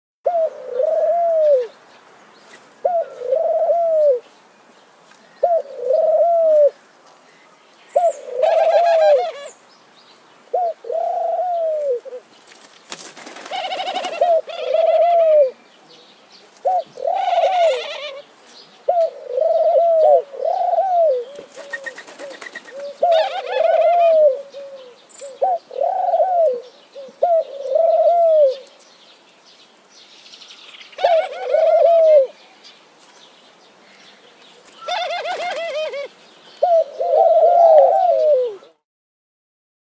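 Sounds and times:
doves cooing: 0.3 - 1.7, 2.8 - 4.2, 5.4 - 6.8, 7.9 - 9.6, 10.5 - 12.3, 13.0 - 15.6, 16.6 - 28.7, 31.0 - 32.4, 34.6 - 38.8.

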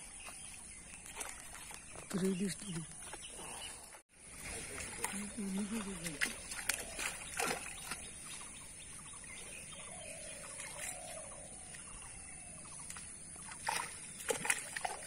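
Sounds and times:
water sloshing and splashing: 0.0 - 15.0
sharp splashes: 0.9 - 2.8, 4.2 - 8.6, 12.8 - 15.0.

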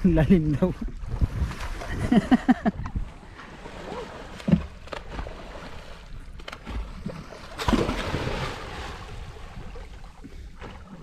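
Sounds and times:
water moving against hull: 0.0 - 11.0
wind on microphone: 0.7 - 4.0
loud splash into water: 7.5 - 9.1.

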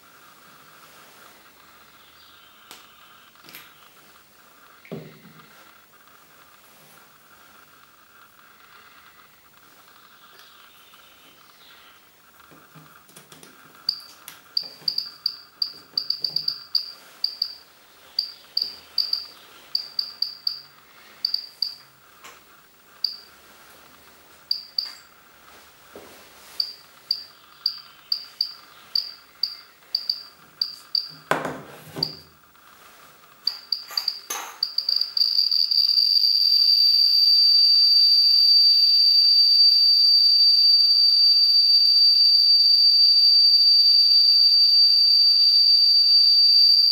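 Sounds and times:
continuous high tone: 13.8 - 31.3, 33.4 - 46.9
dosimeter high beeps: 13.9 - 21.9, 23.0 - 23.3, 24.5 - 25.1, 26.5 - 31.3, 32.0 - 32.3, 33.4 - 46.9.

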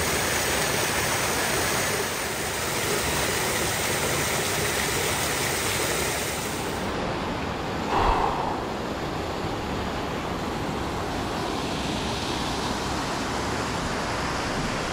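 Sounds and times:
waterfall pouring over rocks: 0.0 - 6.8.

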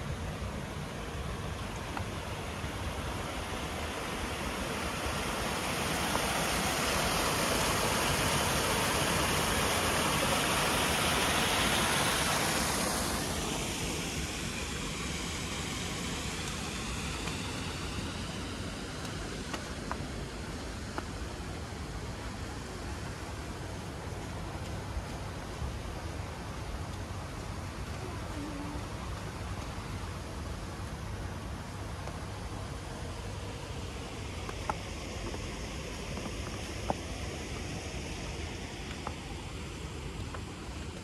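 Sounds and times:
low rumble of street noise: 0.0 - 41.0
tyres hissing on wet road: 0.0 - 41.0.

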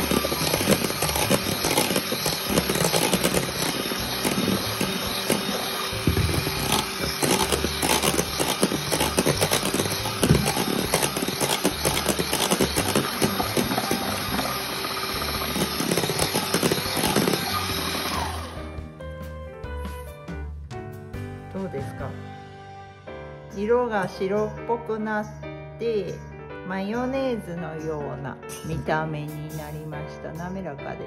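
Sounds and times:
electric hand mixer running: 0.0 - 18.8.

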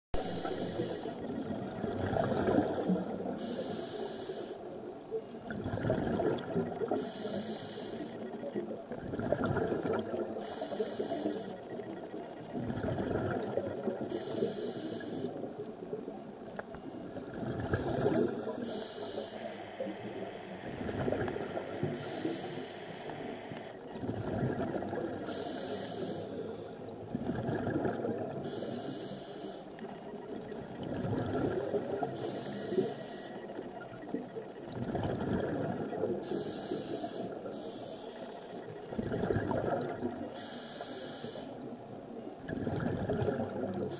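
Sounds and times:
regulator inhale hiss: 0.2 - 1.3, 2.2 - 4.9, 6.9 - 8.3, 10.4 - 11.7, 14.0 - 15.5, 17.8 - 20.4, 21.8 - 23.8, 25.2 - 26.9, 28.4 - 29.8, 31.4 - 33.4, 36.2 - 38.8, 40.3 - 41.7
exhaled bubbles rumbling: 0.2 - 3.4, 5.2 - 7.0, 8.2 - 10.5, 11.6 - 14.1, 15.3 - 18.6, 19.8 - 22.1, 23.8 - 25.3, 26.8 - 28.5, 30.0 - 32.2, 33.5 - 36.3, 38.8 - 40.3, 42.3 - 43.9.

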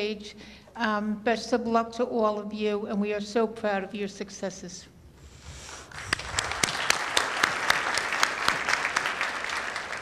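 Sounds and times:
audience applauding: 5.9 - 10.0.

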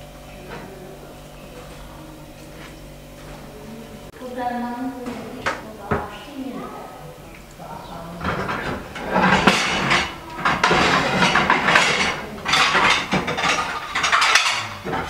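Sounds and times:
dishes and pans clattering: 7.7 - 15.0.

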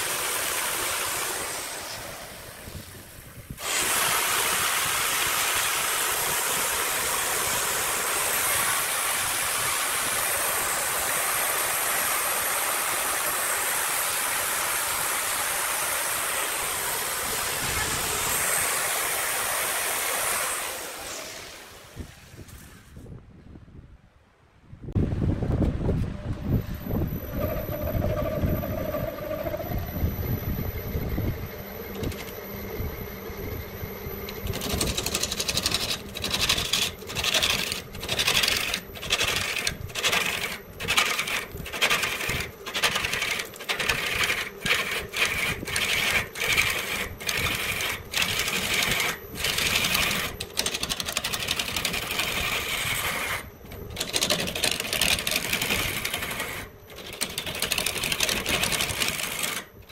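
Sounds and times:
low rumble: 24.9 - 34.6
tool rasping wood: 34.5 - 59.7.

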